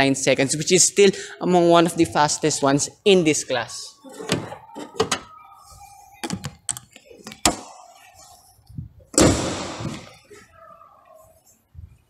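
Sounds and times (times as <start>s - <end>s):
car hood slamming shut: 9.2s - 10.0s.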